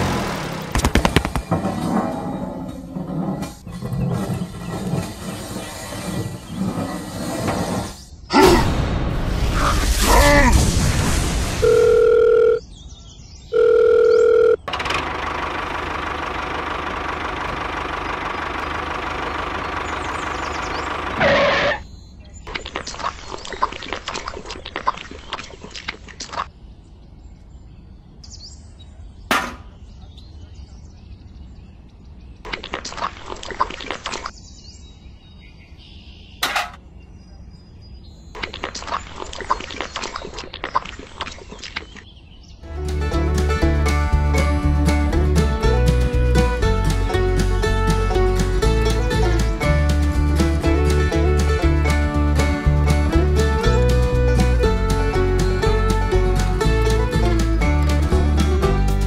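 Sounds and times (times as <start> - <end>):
long electronic beeps: 13.5 - 14.7.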